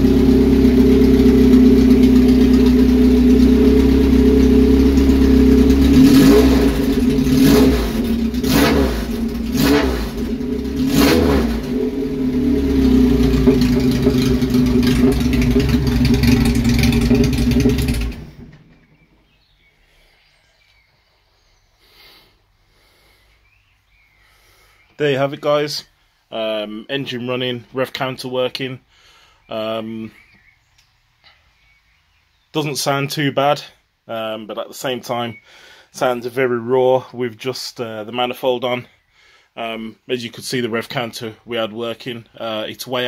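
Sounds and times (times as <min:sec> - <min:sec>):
raw car engine revving: 0:00.0 - 0:19.0.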